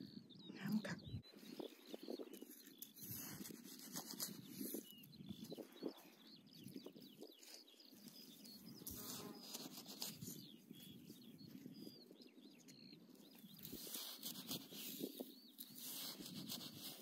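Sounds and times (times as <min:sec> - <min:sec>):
high bird chirps: 0:00.0 - 0:17.0
hands digging in sand and shingle: 0:02.4 - 0:04.9, 0:13.5 - 0:17.0.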